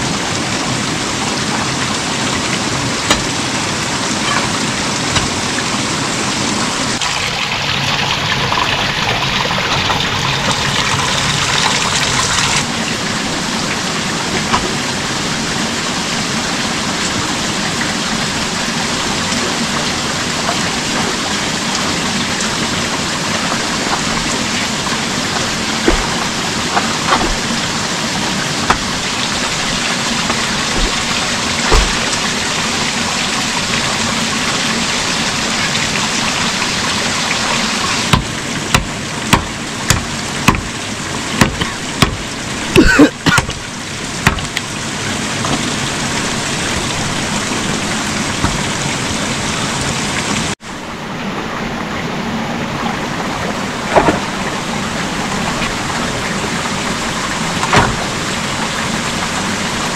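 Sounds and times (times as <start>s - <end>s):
steady rain: 0.0s - 59.9s
small knocks: 44.2s - 44.6s.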